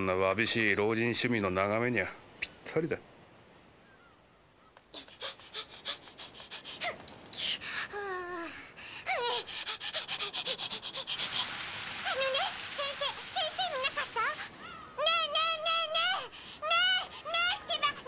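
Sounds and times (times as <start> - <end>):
child breathy vocal sounds: 4.9 - 18.0.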